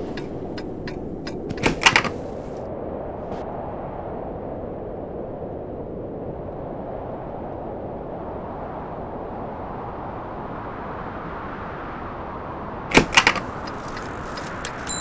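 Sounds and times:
loud sharp knocks: 0.0 - 2.5.

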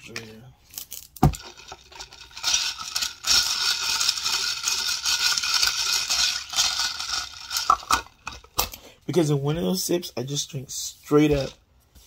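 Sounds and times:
ice cubes rattling in a glass: 1.4 - 8.2.

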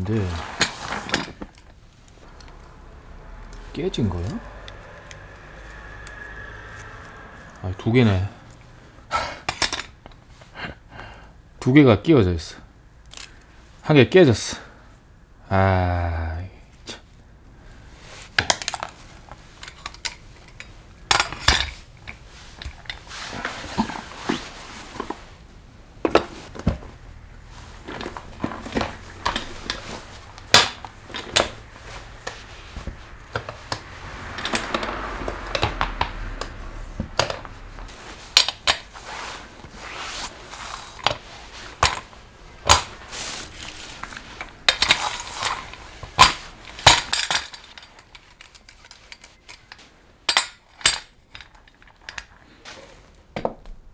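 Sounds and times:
rubbing noise: 36.2 - 41.8.

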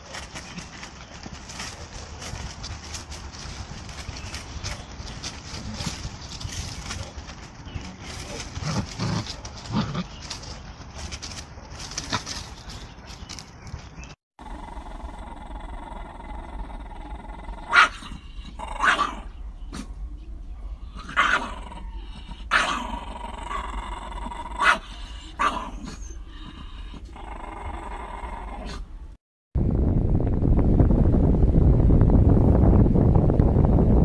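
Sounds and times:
dogs growling: 0.5 - 10.6, 14.4 - 19.9, 20.8 - 28.8
dog snarling barks: 16.7 - 19.9, 20.9 - 26.1.

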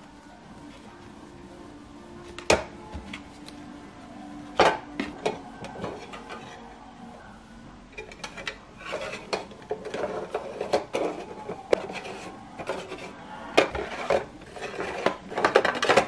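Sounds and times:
plastic drawers sliding: 8.0 - 16.0
plastic rubbing and knocking: 8.0 - 16.0.

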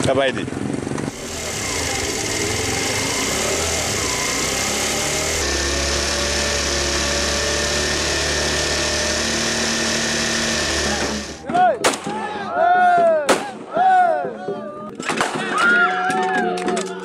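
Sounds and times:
motor scooter engine running: 0.5 - 11.4.

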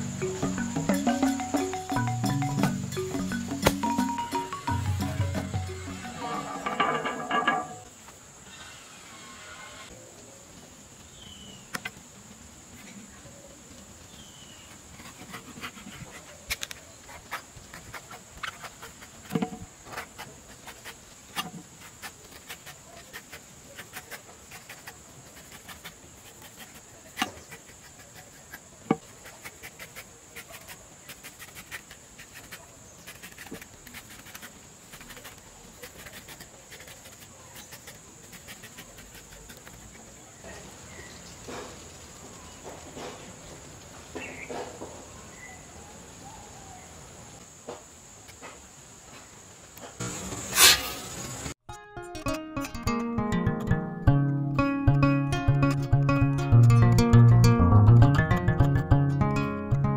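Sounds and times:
knife cutting coconut husk: 14.6 - 40.2, 50.5 - 51.0.

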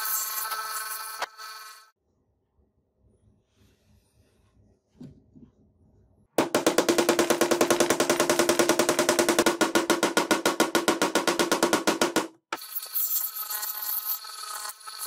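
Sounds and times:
rapid metal hammer taps: 6.4 - 12.4.

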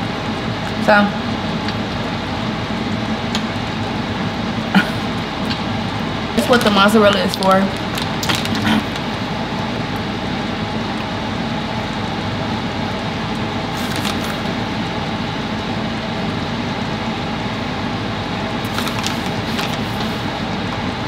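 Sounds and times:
kitchen fan whirring: 0.0 - 21.0
plastic bag crinkling: 6.4 - 9.2, 13.7 - 14.5, 18.6 - 20.3.

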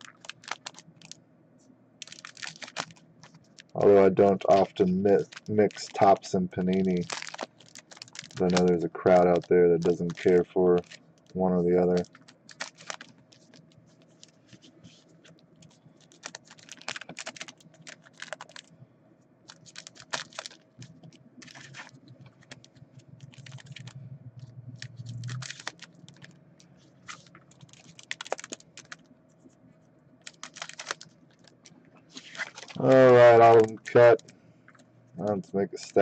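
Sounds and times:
foil packs crinkling: 0.0 - 1.2, 2.0 - 18.7, 19.5 - 24.0, 24.8 - 26.4, 27.0 - 29.1, 30.2 - 34.3, 35.2 - 36.0.

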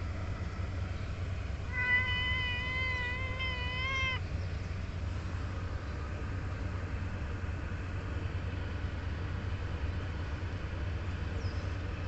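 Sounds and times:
cat meowing: 1.7 - 4.2.

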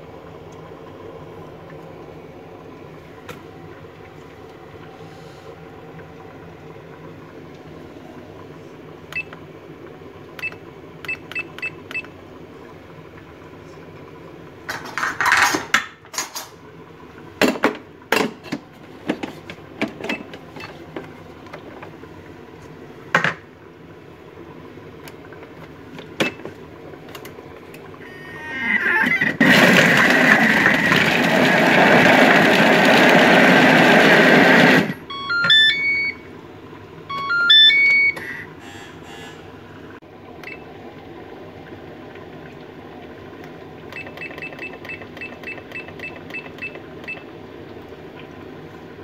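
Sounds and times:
food processor motor chopping: 29.2 - 35.0.

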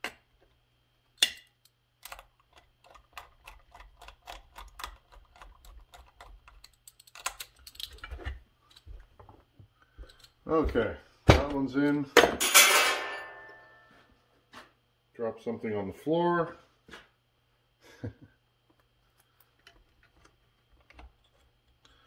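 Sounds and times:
screwdriver clicking: 1.2 - 8.0.

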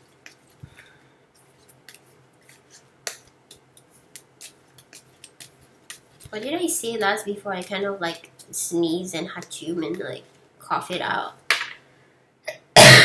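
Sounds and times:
cards being shuffled: 1.4 - 8.6.

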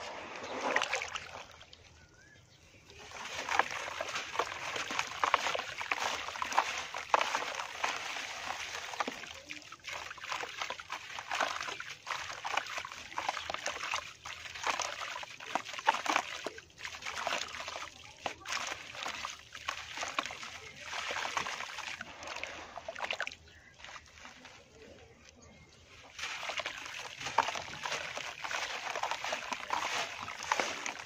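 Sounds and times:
water sloshing and splashing: 0.0 - 31.0
dirt crumbling: 2.9 - 9.3, 23.4 - 31.0.

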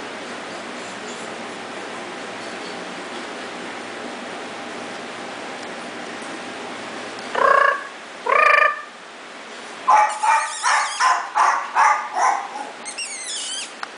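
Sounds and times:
small dogs yapping: 9.9 - 13.8.

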